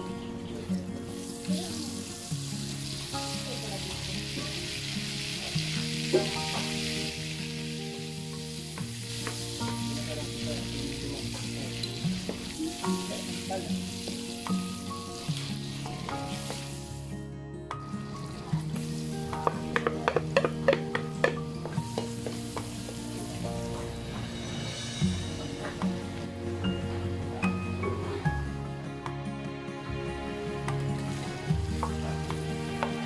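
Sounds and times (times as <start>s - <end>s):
butter sizzling in oil: 0.0s - 17.1s, 18.0s - 25.4s.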